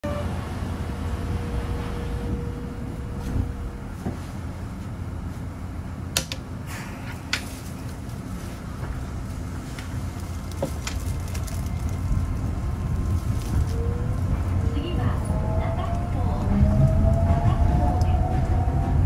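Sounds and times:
train low rumble: 0:00.0 - 0:19.0.

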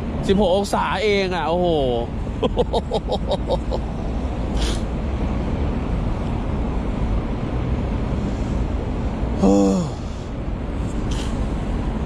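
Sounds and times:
low vehicle rumble: 0:00.0 - 0:12.0
brief hiss: 0:11.0 - 0:11.4.

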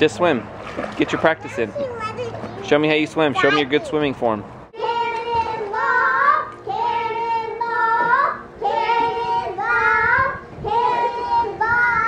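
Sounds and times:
child singing: 0:04.8 - 0:12.0.

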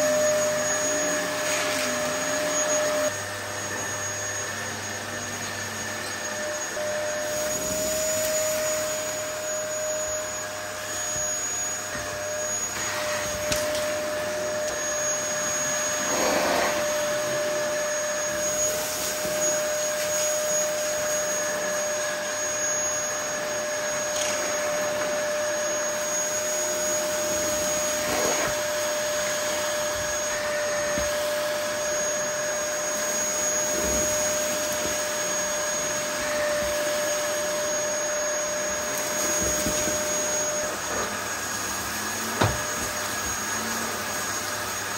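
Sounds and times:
vacuum cleaner whining: 0:00.0 - 0:44.9.

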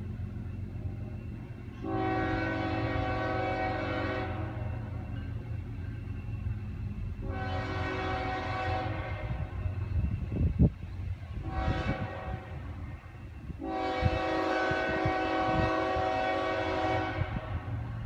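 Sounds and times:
locomotive air horn blasts: 0:01.8 - 0:04.8, 0:07.2 - 0:09.6, 0:11.4 - 0:12.8, 0:13.6 - 0:17.8.

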